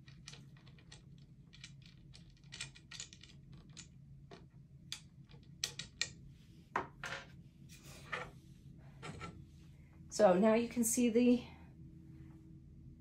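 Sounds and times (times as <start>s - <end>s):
wooden loom parts clicking: 0.0s - 6.2s.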